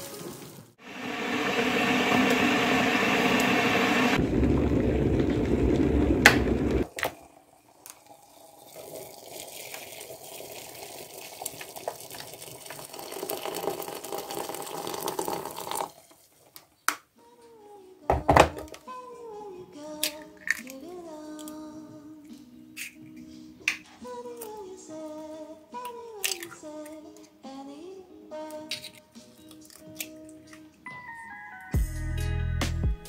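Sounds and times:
water pouring into kettle: 0.0 - 16.2.

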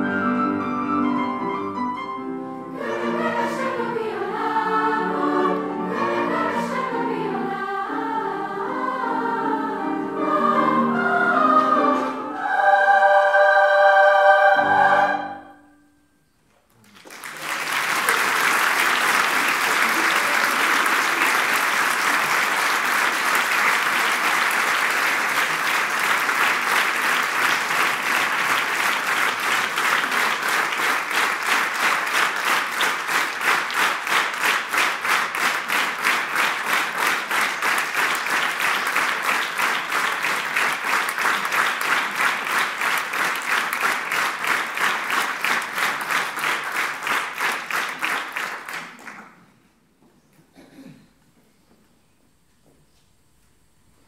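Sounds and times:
audience applauding: 16.7 - 49.4
rhythmic clapping in unison: 16.8 - 49.5.

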